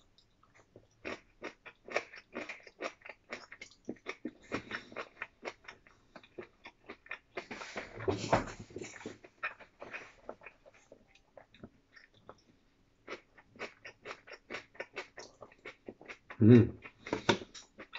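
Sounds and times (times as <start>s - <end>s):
person chewing food: 0.0s - 17.9s.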